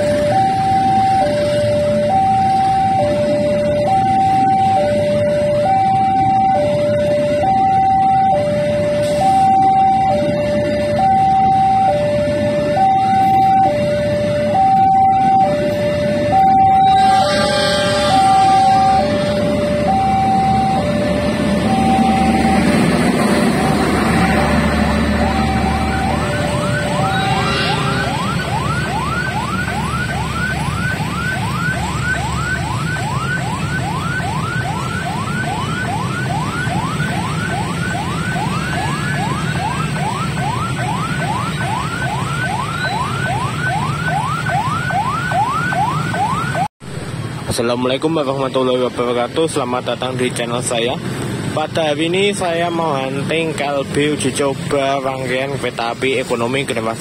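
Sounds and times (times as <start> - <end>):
rising whooping alarm: 0.0 - 46.7
two-tone crossing alarm: 0.0 - 46.7.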